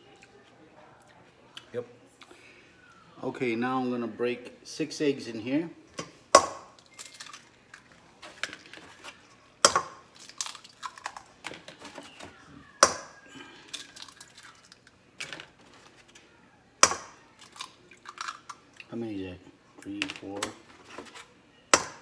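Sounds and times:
eggs cracking against metal bowl: 0:06.0 - 0:16.2, 0:16.8 - 0:18.9, 0:19.8 - 0:22.0.

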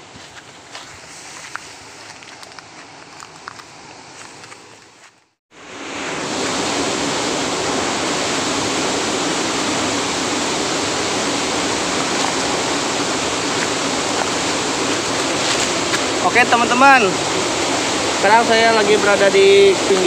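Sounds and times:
water rushing over waterfall: 0:05.8 - 0:20.0.

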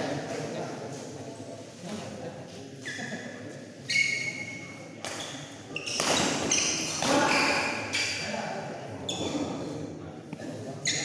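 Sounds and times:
shoes squeaking on court floor: 0:02.8 - 0:08.3, 0:10.8 - 0:11.0.

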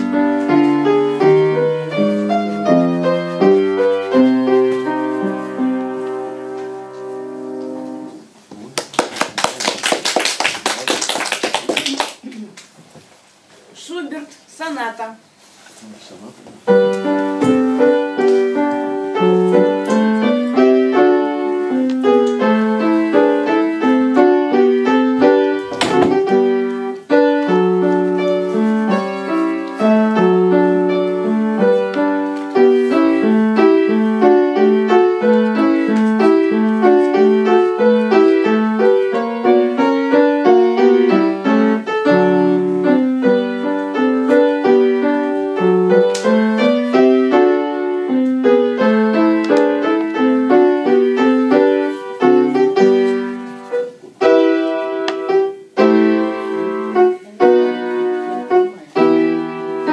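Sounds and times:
classical piano piece: 0:00.0 - 0:12.3, 0:16.6 - 0:59.9.

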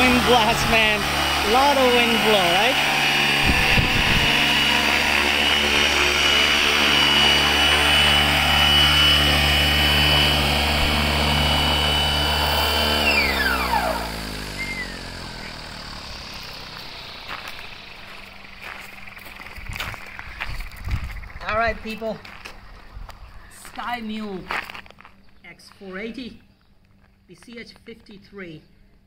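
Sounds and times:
rotor downwash on microphone: 0:00.0 - 0:17.5
rc helicopter motor whine: 0:00.0 - 0:23.3
helicopter rotor noise: 0:00.0 - 0:24.2.

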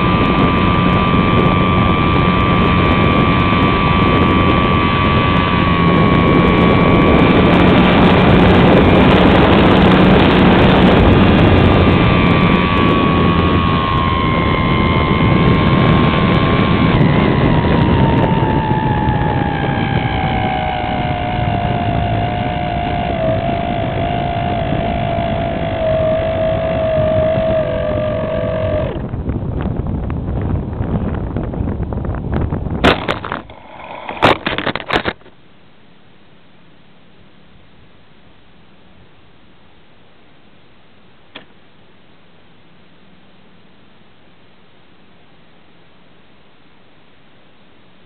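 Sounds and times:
air rushing over microphone: 0:00.0 - 0:34.9
electric motor and propeller whining: 0:00.0 - 0:35.3.

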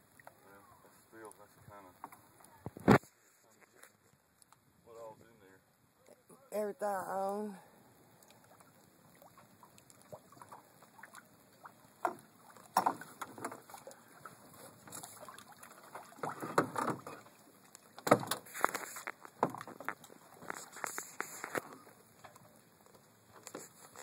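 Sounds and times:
short clunks against hull: 0:12.0 - 0:13.9, 0:14.7 - 0:17.3, 0:18.0 - 0:22.4.

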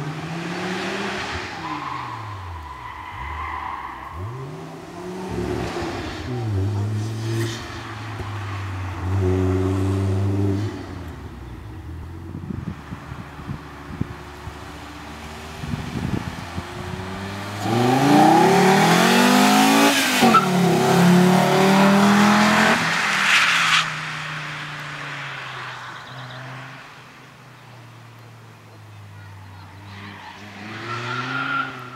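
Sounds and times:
car engine accelerating hard: 0:12.4 - 0:22.9.

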